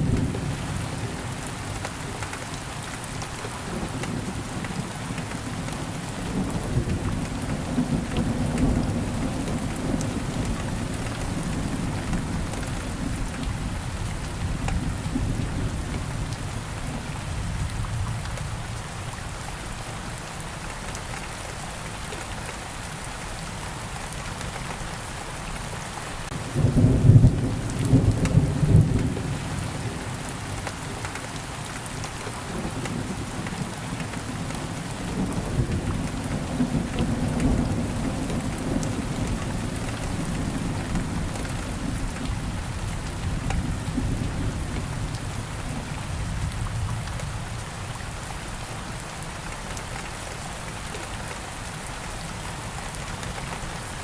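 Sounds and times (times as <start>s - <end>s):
steady rain: 0.0s - 54.0s
thunder clap and rumble: 26.4s - 30.1s.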